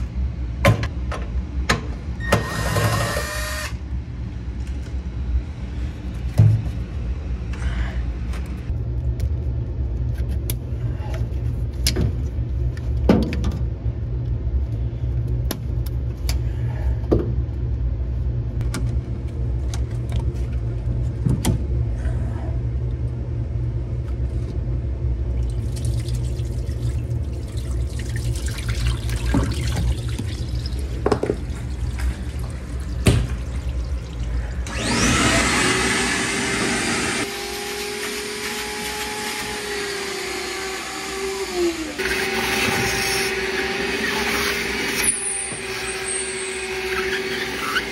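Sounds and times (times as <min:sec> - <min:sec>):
steady low hum: 0:00.0 - 0:02.2, 0:02.8 - 0:37.6
shop vacuum whining: 0:34.5 - 0:47.9.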